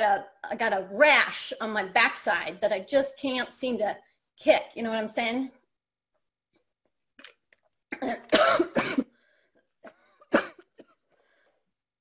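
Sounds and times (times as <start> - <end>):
woman coughing: 7.9 - 9.2, 9.8 - 11.0.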